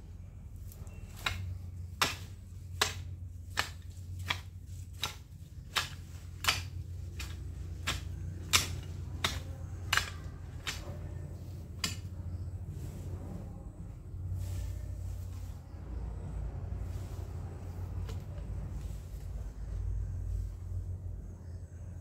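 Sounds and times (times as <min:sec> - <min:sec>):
garden tool chopping ground: 0:00.6 - 0:13.4, 0:16.8 - 0:19.9.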